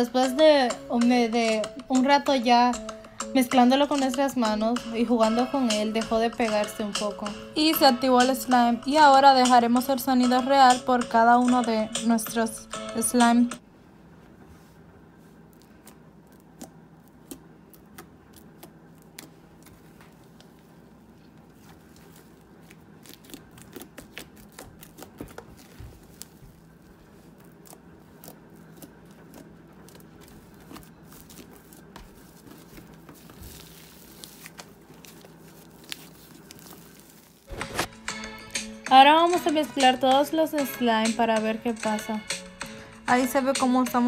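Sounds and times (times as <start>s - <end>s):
slime squeezed crackling: 15.5s - 20.7s, 21.5s - 37.5s.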